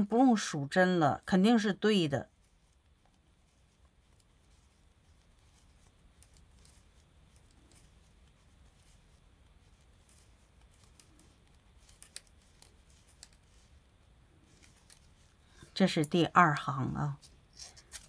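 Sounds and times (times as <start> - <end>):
knitting needles clicking: 5.2 - 13.9, 14.5 - 16.4.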